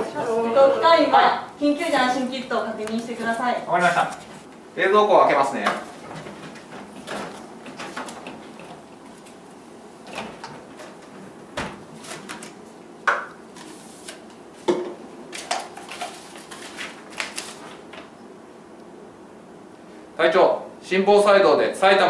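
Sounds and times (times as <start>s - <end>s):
refrigerator door opening and shutting: 10.0s - 12.3s.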